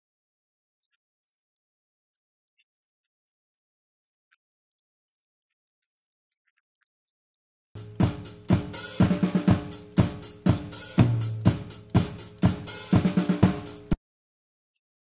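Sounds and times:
drum kit playing steady beat: 7.8 - 14.0.

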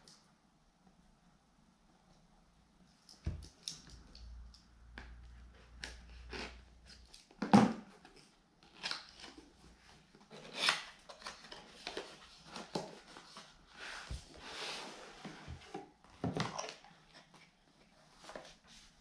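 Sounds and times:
knife slitting box seal: 10.3 - 11.0.

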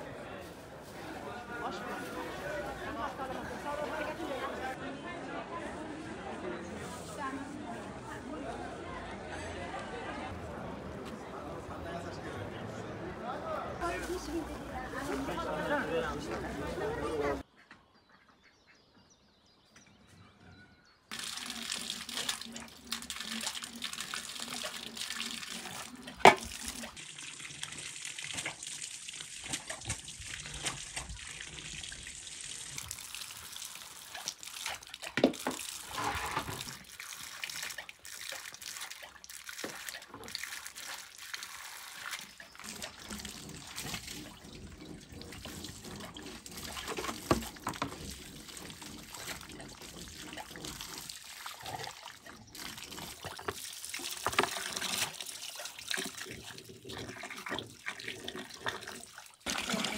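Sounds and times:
running water splashing: 0.0 - 4.8, 13.8 - 17.4, 21.1 - 59.9.

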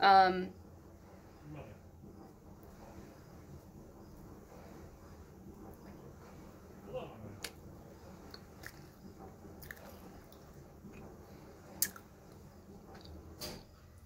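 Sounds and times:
person chewing bread: 8.3 - 13.2.

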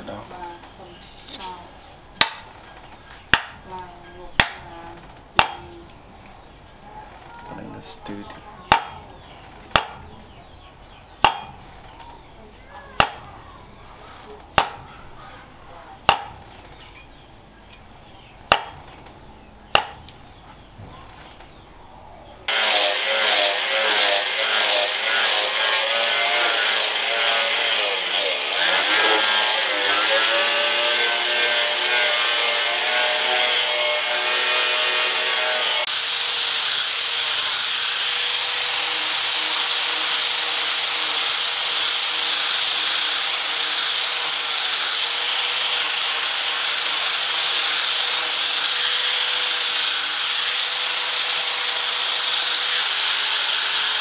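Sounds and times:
angle grinder whining on steel: 22.5 - 54.0
sanding disc grinder steady tone: 22.5 - 54.0.

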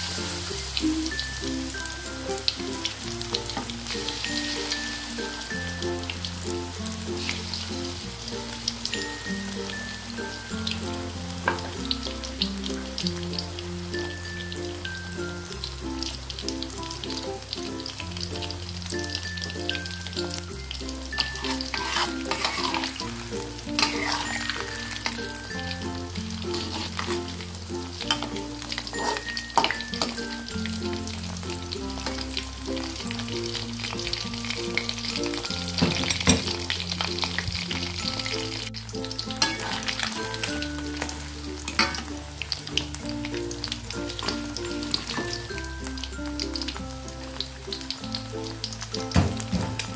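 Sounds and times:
shrimp deep-frying in oil: 0.0 - 49.9
spatula scraping wok: 6.8 - 13.0, 21.0 - 42.2.

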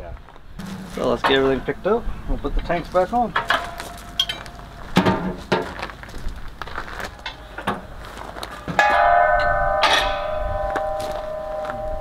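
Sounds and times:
steel cylinder ringing: 0.6 - 5.0, 8.8 - 12.0
metal cylinders knocking: 0.6 - 5.8.

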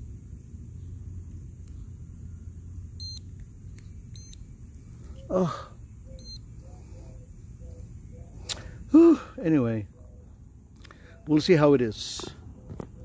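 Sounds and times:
short high electronic beeps: 3.0 - 3.2, 4.2 - 4.4, 6.2 - 6.4.

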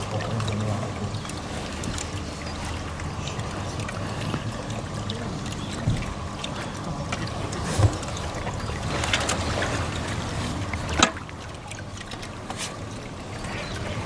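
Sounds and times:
small waves lapping at shore: 0.0 - 14.0.

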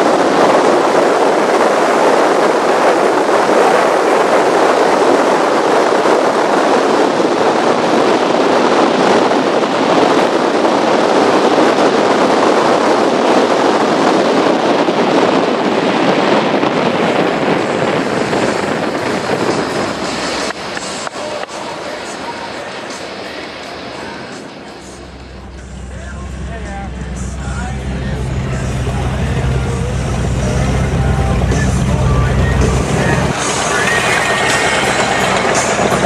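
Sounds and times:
wind and water rushing: 0.0 - 36.0.

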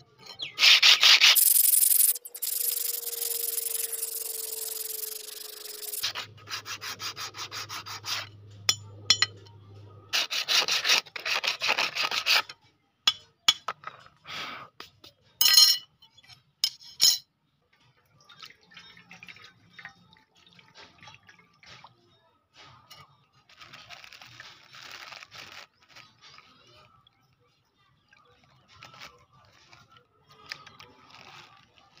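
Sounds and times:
sandpaper rubbing on steel: 0.5 - 8.4, 10.1 - 12.5.

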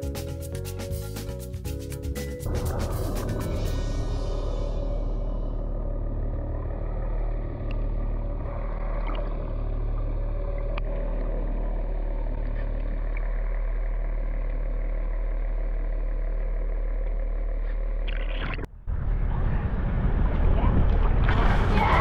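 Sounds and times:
boat engine drone underwater: 2.4 - 22.0.

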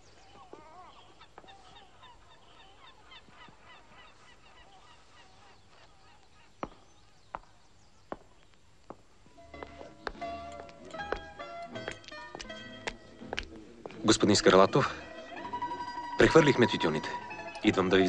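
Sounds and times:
flock of birds calling: 0.0 - 7.4
plucked-string music: 9.4 - 18.0.

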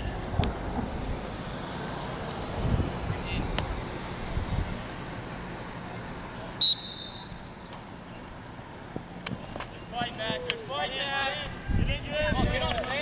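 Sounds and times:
rapid whistle trill: 6.6 - 7.4, 10.8 - 13.0
referee's whistle blast: 6.6 - 7.4.

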